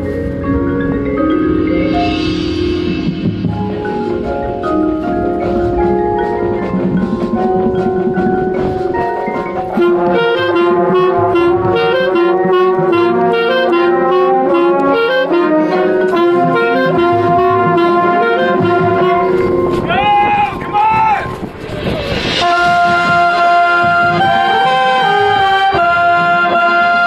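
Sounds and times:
mallet percussion: 0.0s - 20.2s
marching band playing: 0.0s - 27.0s.

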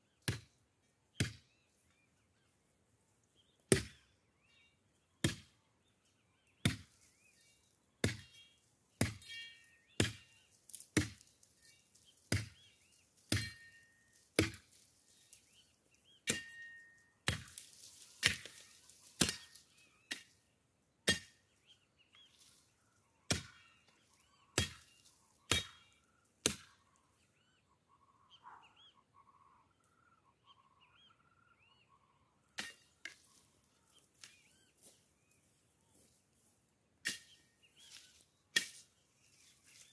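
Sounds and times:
faint birds chirping: 0.0s - 39.9s
machete chopping branches: 3.7s - 4.0s, 9.0s - 11.4s, 12.0s - 16.6s, 17.2s - 20.4s, 23.3s - 23.7s, 24.6s - 26.8s, 32.6s - 33.4s, 37.0s - 39.9s
branches rustling: 10.2s - 16.2s, 16.9s - 20.1s, 32.8s - 39.9s.

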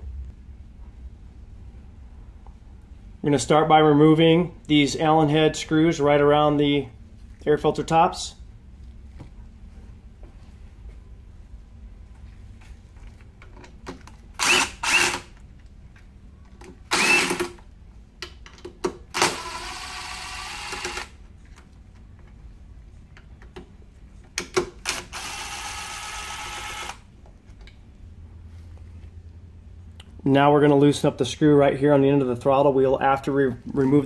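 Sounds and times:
cordless drill motor whirring: 14.4s - 15.3s, 16.9s - 17.5s, 19.1s - 21.2s, 24.8s - 27.1s.

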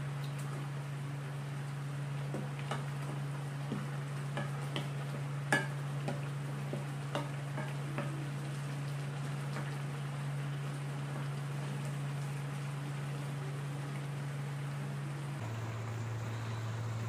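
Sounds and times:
steady low hum: 12.9s - 17.0s.

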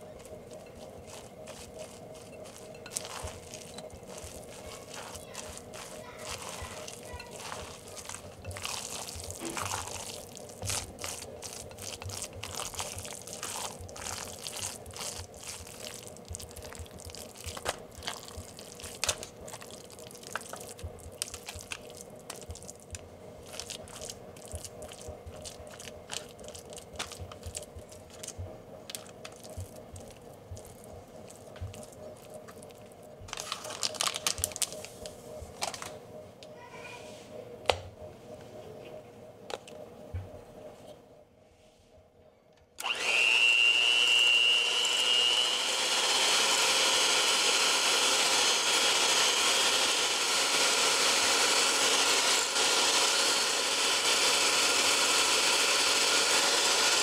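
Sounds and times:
batter spread in baking pan: 0.0s - 35.6s
spatula scraping glass bowl: 0.2s - 16.0s.

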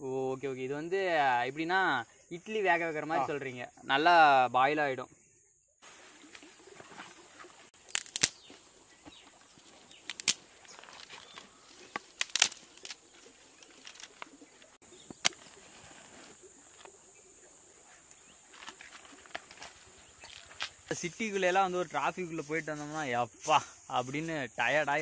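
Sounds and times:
sticks snapping and clattering: 7.8s - 8.6s, 9.7s - 15.5s, 18.6s - 20.9s
sharp wood cracks: 7.8s - 15.6s, 18.1s - 20.9s.

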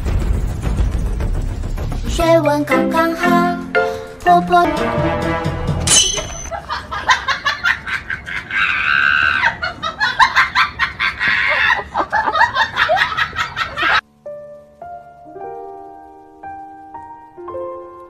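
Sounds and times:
person laughing hard: 6.5s - 14.0s.

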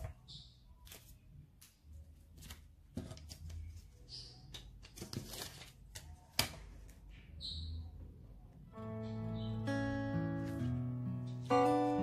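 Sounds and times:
paper rustling: 0.8s - 7.0s.

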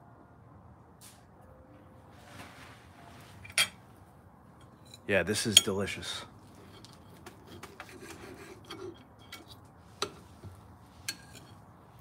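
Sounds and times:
knife and fork scraping plate: 6.5s - 11.6s.

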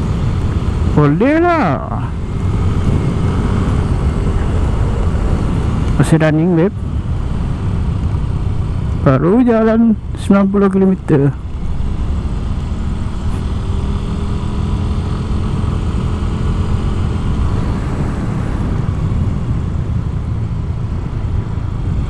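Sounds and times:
wind rumble on microphone: 0.0s - 10.6s, 11.3s - 22.0s
scooter engine running: 11.4s - 18.8s.

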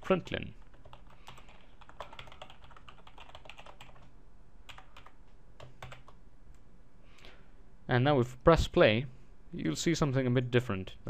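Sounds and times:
typing on computer keyboard: 0.6s - 4.1s, 4.7s - 6.2s.

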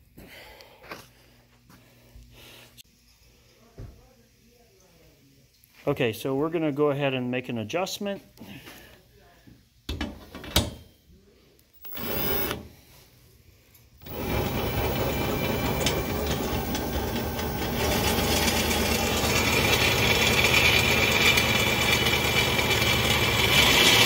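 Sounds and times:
power drill running: 11.8s - 12.8s, 14.0s - 24.0s.

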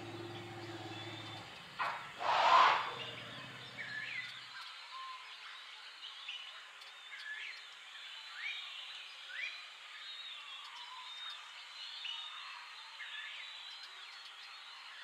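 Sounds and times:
loud rush of noise: 0.0s - 4.1s
low hum: 0.0s - 4.3s
birds whistling: 0.0s - 5.1s
steady outdoor hiss: 0.0s - 15.0s.

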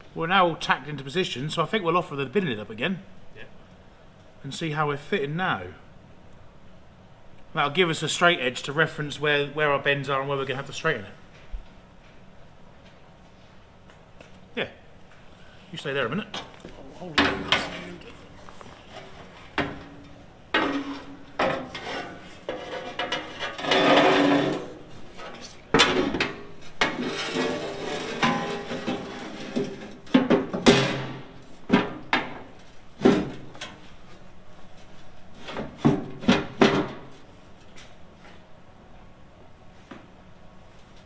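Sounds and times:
metal knocks and clanks: 19.5s - 33.7s
metal lid scraping and sliding: 20.5s - 25.4s, 26.8s - 30.1s.

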